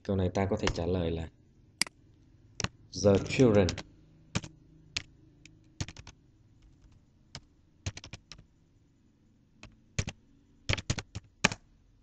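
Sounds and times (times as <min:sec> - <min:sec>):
computer keyboard typing: 0:02.6 - 0:08.5, 0:09.6 - 0:11.7.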